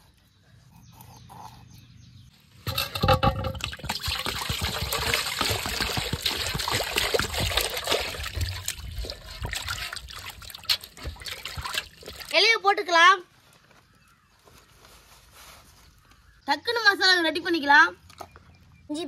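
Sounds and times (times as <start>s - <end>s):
water splashing in metal basin: 2.7s - 12.4s
hands scrubbing fish: 3.8s - 12.3s.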